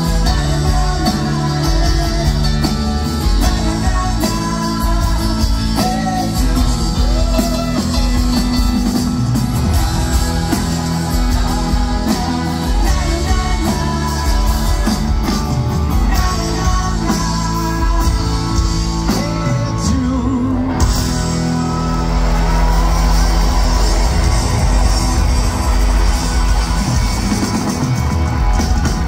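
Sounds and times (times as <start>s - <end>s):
person singing lead vocals: 0.0s - 8.7s, 9.6s - 22.2s
pop-rock band playing live: 0.0s - 29.0s.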